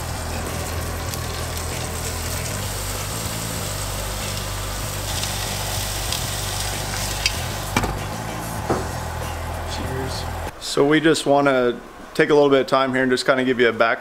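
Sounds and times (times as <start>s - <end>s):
meat sizzling in frying pan: 0.0s - 7.8s.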